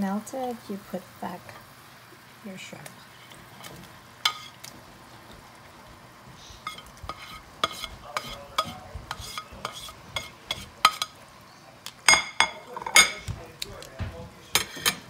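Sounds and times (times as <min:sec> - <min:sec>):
soft sizzle in a pan: 0:00.0 - 0:15.0
metal tongs clinking against pan: 0:04.2 - 0:04.6, 0:06.7 - 0:11.2, 0:12.0 - 0:13.3, 0:14.6 - 0:15.0.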